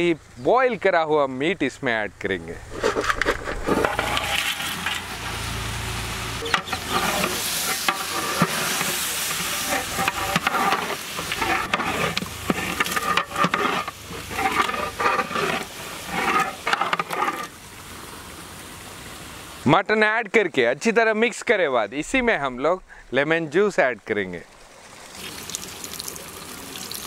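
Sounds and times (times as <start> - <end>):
masala sizzling: 2.6 - 19.6, 25.0 - 27.0
metal ladle scraping pot: 2.7 - 5.4, 6.4 - 17.6.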